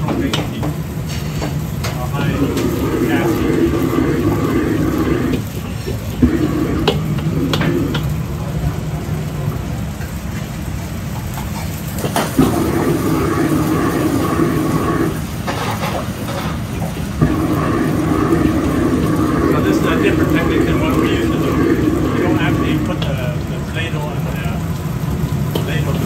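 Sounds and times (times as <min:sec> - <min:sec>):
gas burner running: 0:00.0 - 0:26.0
noodles frying and sizzling: 0:00.0 - 0:26.0
metal clanks of wok and utensils: 0:15.4 - 0:16.9.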